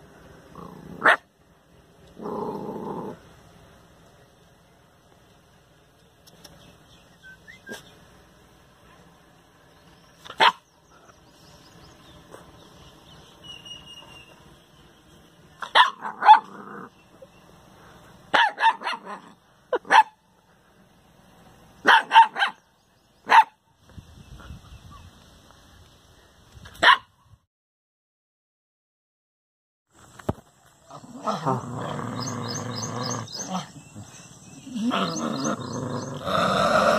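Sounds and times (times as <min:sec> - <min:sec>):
dog barking: 0:01.0 - 0:01.2, 0:10.3 - 0:10.6, 0:15.6 - 0:16.6, 0:18.3 - 0:20.2, 0:21.8 - 0:22.6, 0:23.2 - 0:23.6, 0:26.8 - 0:27.1.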